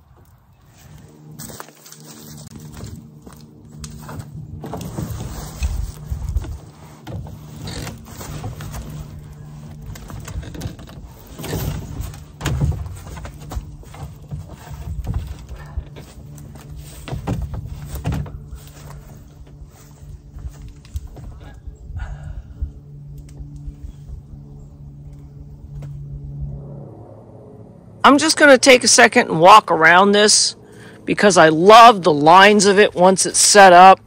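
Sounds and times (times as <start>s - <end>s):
low hum: 0.0s - 34.0s
paddles and rope knocking: 2.5s - 21.6s.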